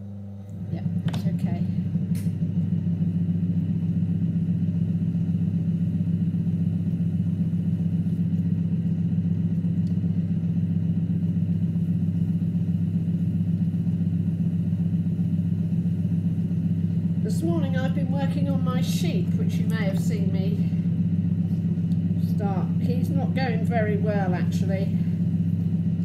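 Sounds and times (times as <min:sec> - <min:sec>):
potter's wheel motor hum: 0:00.0 - 0:26.0.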